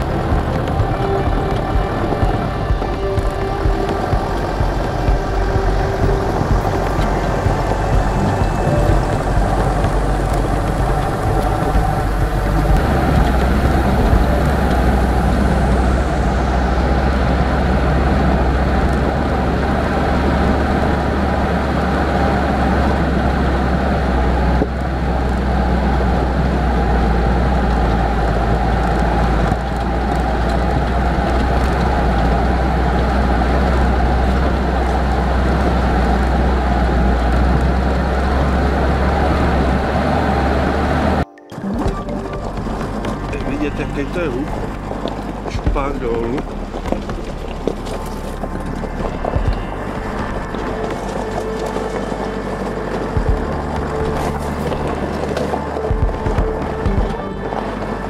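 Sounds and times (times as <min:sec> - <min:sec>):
car engine and road rumble: 0:00.0 - 0:58.0.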